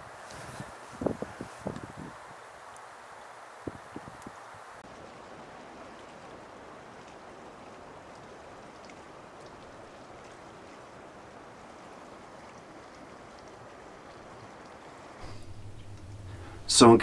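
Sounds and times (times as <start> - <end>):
steady rushing noise: 15.2 - 17.0.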